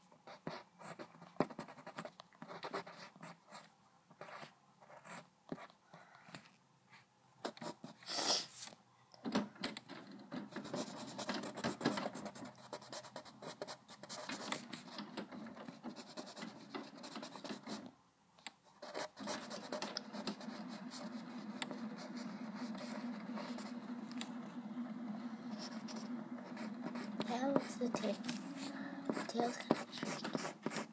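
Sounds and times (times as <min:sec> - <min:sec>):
pencil scratching on paper: 0:00.3 - 0:05.7, 0:10.5 - 0:17.9, 0:18.7 - 0:24.2, 0:24.8 - 0:30.9
steady low hum: 0:18.8 - 0:30.9.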